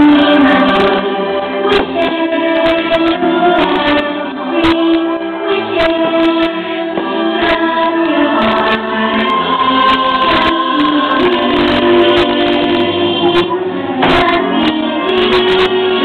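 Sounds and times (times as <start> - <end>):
choir singing held notes: 0.0 - 16.0.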